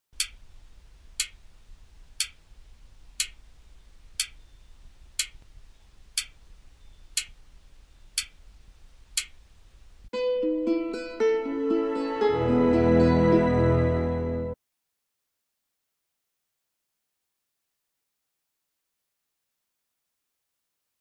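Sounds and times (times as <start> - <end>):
wall clock ticking: 0.2 - 1.5, 2.1 - 2.4, 3.1 - 3.4, 4.2 - 4.4, 5.2 - 5.4, 6.1 - 6.4, 7.1 - 7.4, 8.1 - 8.4, 9.2 - 9.4.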